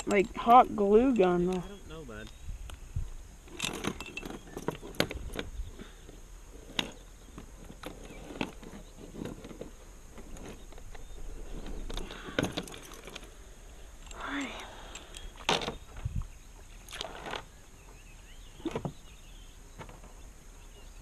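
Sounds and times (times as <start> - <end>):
metal chain clinking and rattling: 3.4 - 5.6, 6.5 - 14.3.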